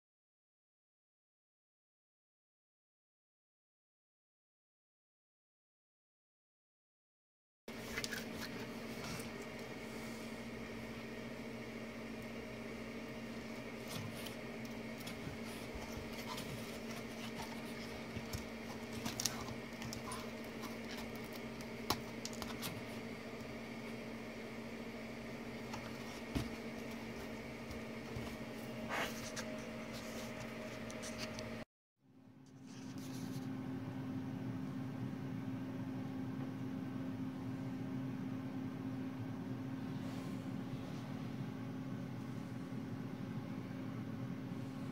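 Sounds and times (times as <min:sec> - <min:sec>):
steady electrical hum: 0:07.7 - 0:31.6.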